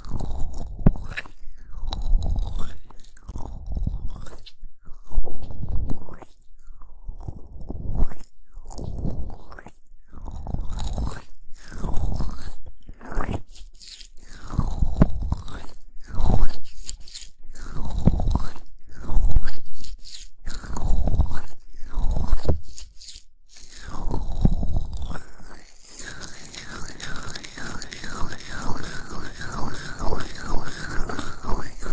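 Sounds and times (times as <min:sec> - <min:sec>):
hands rubbing on microphone: 0:22.2 - 0:31.9.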